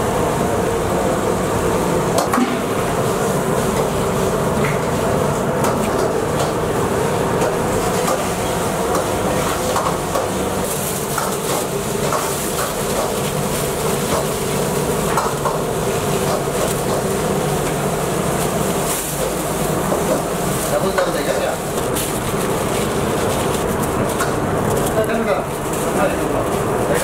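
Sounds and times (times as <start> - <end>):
kitchen hum and hiss: 0.0 - 27.0
aluminium foil crinkling: 10.5 - 27.0.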